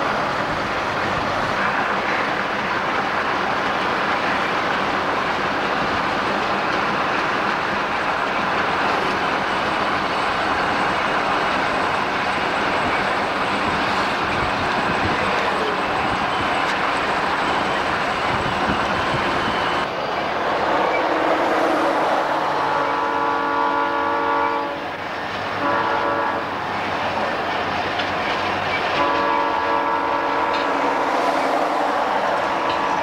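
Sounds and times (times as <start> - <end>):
car road and wind noise: 17.9 - 22.9
locomotive air horn chord: 22.5 - 24.9, 25.6 - 26.6, 29.0 - 30.8.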